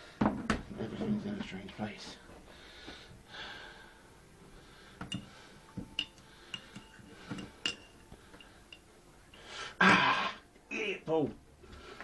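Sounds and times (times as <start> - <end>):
teaspoon clinking against mug: 5.1 - 8.9.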